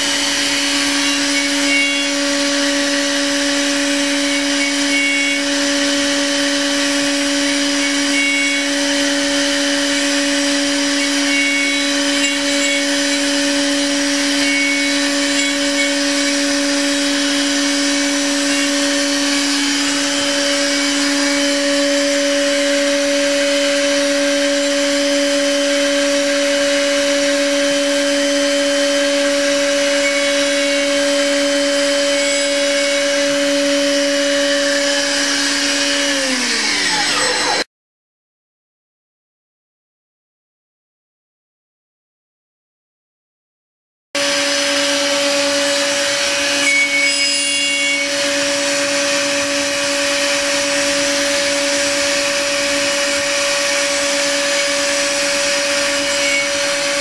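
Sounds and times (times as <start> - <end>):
milling machine spindle whine: 0.0 - 37.7, 44.2 - 57.0
hiss of cutting chips: 7.0 - 27.0, 29.0 - 33.8.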